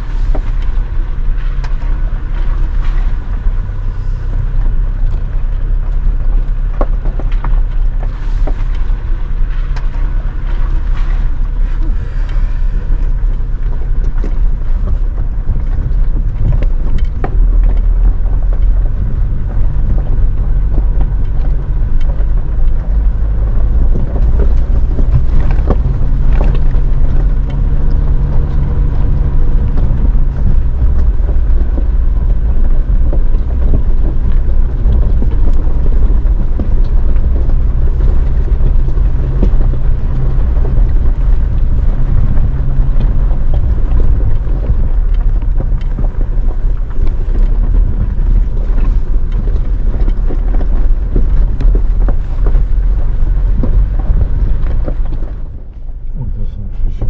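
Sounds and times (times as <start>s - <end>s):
engine and tyre rumble: 0.0s - 57.0s
knocks and rattles: 12.8s - 56.2s.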